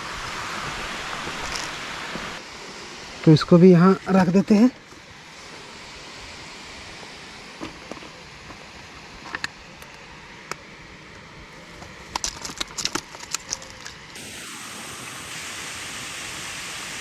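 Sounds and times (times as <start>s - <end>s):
river water flowing: 0.0s - 7.6s.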